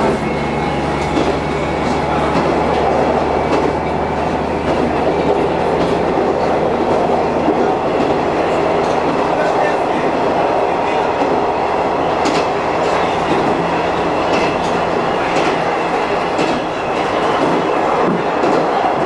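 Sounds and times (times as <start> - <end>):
diesel railcar engine hum: 0.0 - 19.0
rolling rail noise: 0.0 - 19.0
wheels clicking over rail joints: 12.1 - 18.9.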